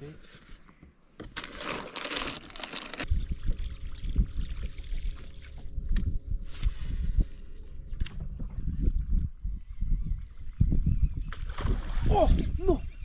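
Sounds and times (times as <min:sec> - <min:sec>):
wind rumble on microphone: 0:03.0 - 0:13.0.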